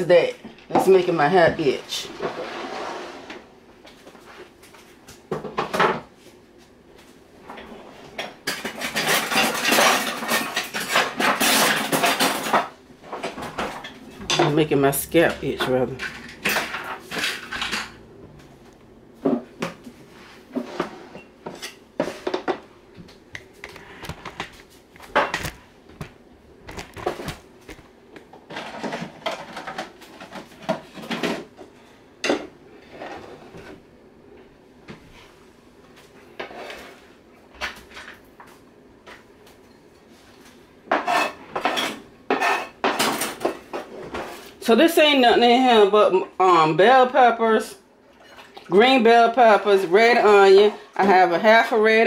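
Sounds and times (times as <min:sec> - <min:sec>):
dishes and utensils clinking: 0:08.2 - 0:18.1.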